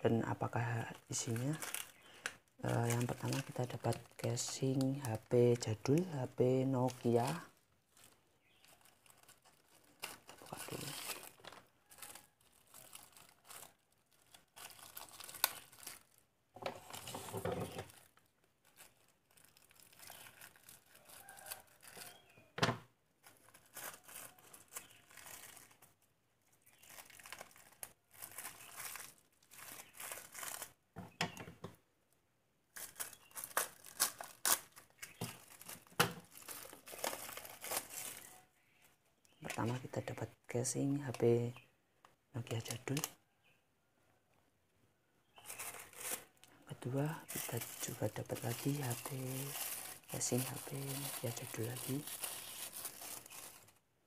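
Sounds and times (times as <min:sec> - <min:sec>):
plastic bag crinkling and tearing: 0:00.2 - 0:22.5, 0:23.2 - 0:30.8, 0:32.7 - 0:38.4, 0:42.4 - 0:43.2, 0:45.4 - 0:53.8.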